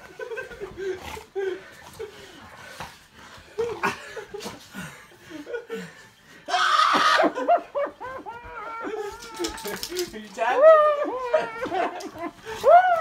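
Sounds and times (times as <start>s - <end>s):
person chuckling and snickering: 0.0s - 2.6s, 3.4s - 6.2s
rough laughter burst: 6.5s - 7.8s.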